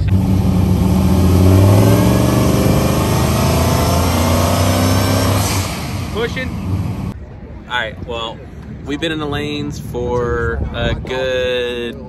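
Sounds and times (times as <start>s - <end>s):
truck engine revving: 0.0s - 7.2s.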